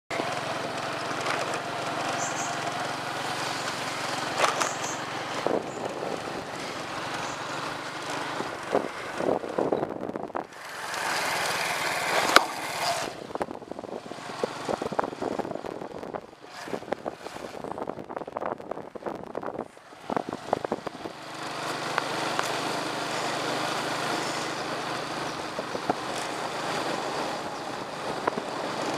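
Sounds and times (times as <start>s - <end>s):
small engine running: 0.1s - 18.6s, 19.4s - 28.9s
wind on microphone: 5.3s - 6.7s, 8.3s - 10.6s, 12.0s - 21.2s, 25.4s - 28.9s.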